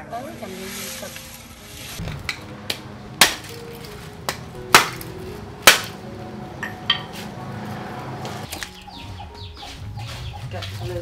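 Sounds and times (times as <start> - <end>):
hammer breaking charcoal on concrete: 2.0 - 6.0.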